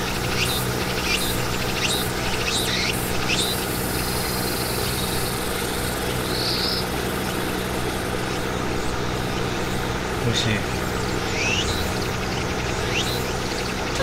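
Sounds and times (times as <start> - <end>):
high sweeping insect calls: 0.0 - 14.0
steady low hum: 0.0 - 14.0.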